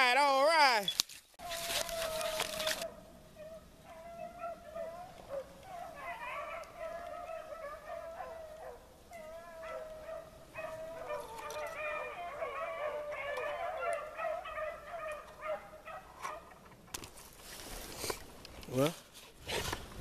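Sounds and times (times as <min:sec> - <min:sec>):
hounds baying: 0:01.4 - 0:16.6.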